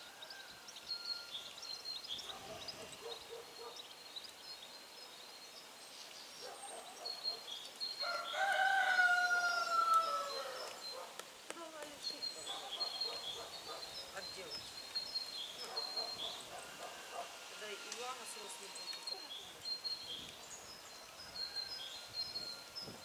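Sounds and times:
small birds chirping: 0.0s - 23.0s
rooster crowing: 8.0s - 10.7s.

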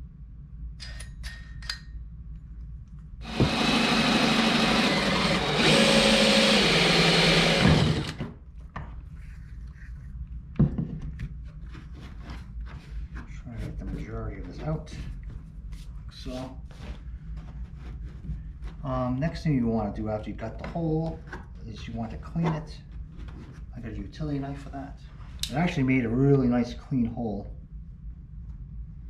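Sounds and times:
cordless drill cutting plastic: 3.2s - 8.3s
knocks and scrapes: 4.8s - 19.0s, 20.4s - 24.0s.

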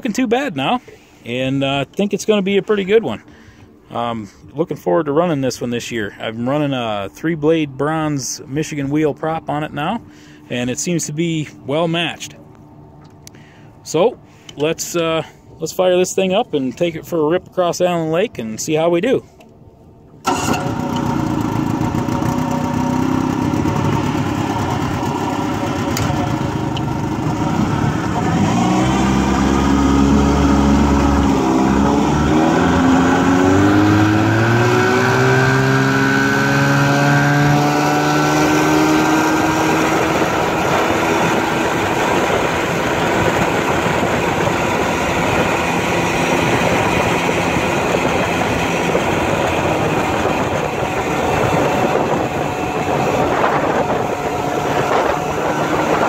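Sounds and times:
outboard motor running: 20.1s - 56.0s.

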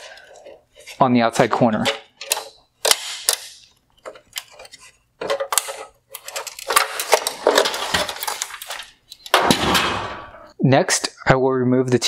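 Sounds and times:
plastic clattering and scraping: 3.9s - 10.0s.

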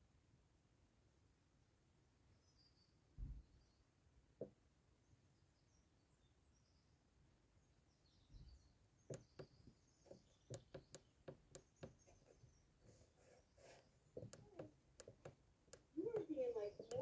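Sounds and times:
faint clicks and taps: 9.1s - 13.0s, 13.6s - 17.0s.

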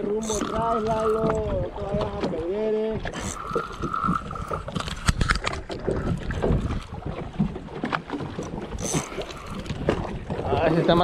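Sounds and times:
boat knocks and bumps: 0.0s - 3.1s, 5.0s - 8.8s, 9.7s - 11.0s
wind buffeting microphone: 0.0s - 11.0s.

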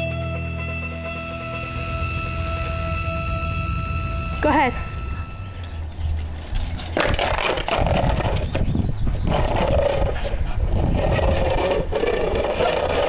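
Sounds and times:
dog growling: 9.3s - 13.0s.

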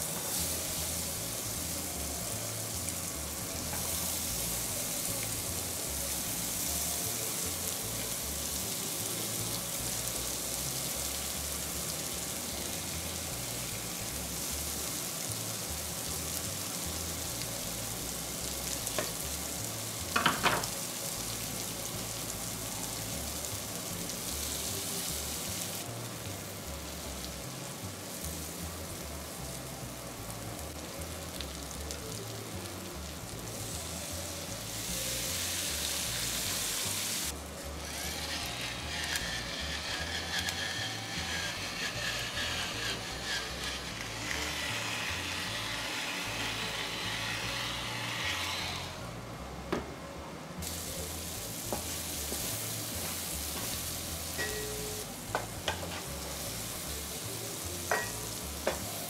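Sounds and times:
vegetables sizzling on a grill: 0.0s - 49.7s, 50.5s - 59.0s
liquid poured on hot grill: 26.6s - 49.0s, 50.6s - 59.0s.

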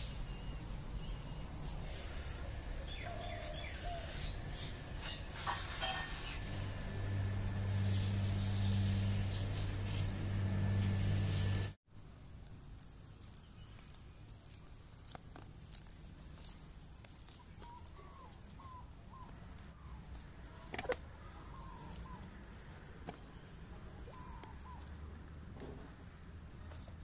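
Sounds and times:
faint bird chirps: 0.0s - 6.6s.

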